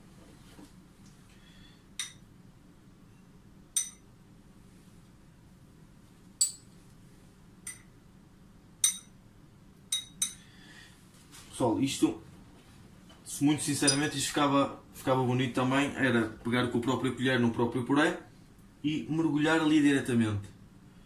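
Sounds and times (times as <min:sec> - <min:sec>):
spoon clinking against glass: 0:03.8 - 0:04.1, 0:06.4 - 0:06.7, 0:08.8 - 0:09.2, 0:09.9 - 0:10.4, 0:13.8 - 0:14.1.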